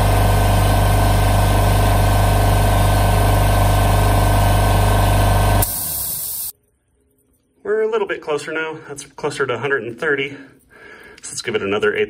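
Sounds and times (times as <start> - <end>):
electric air compressor running: 0.0 - 6.5
released air hiss: 5.6 - 6.5.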